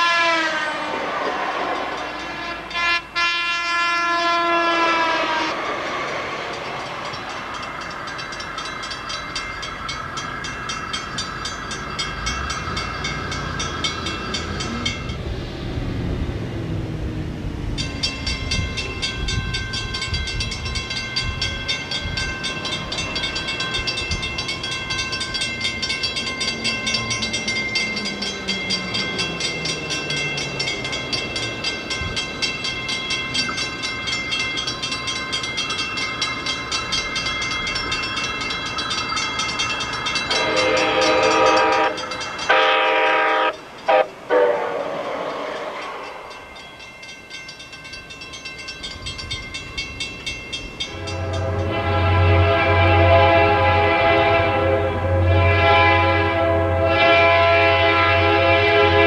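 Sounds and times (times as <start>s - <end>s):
train horn: 0.0s - 5.8s, 40.3s - 45.8s, 50.9s - 59.0s
crossing warning bell ringing: 0.0s - 15.8s, 17.6s - 59.0s
train rumbling past: 0.0s - 59.0s.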